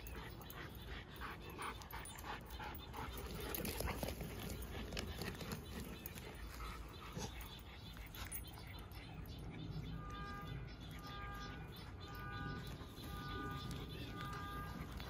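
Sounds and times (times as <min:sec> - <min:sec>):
dog panting: 0:00.0 - 0:09.7.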